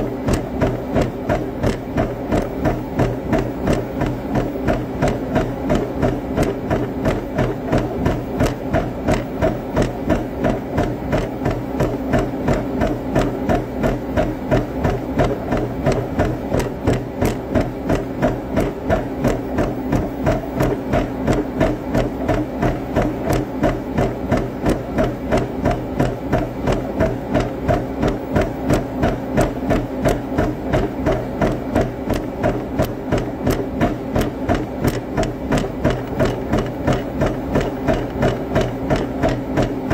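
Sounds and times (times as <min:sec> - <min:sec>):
speed bag being punched: 0:00.1 - 0:39.9.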